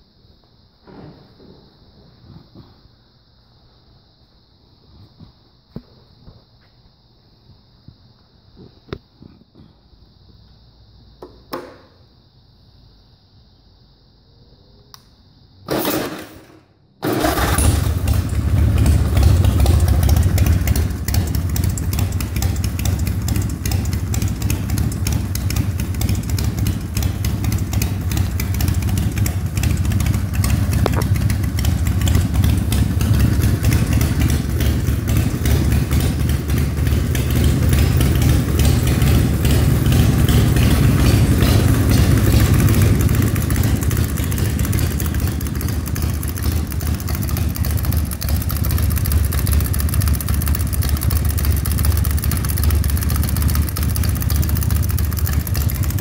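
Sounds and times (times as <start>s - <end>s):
motorcycle engine cranking: 15.7s - 56.0s
motorcycle engine idling loudly: 17.0s - 56.0s.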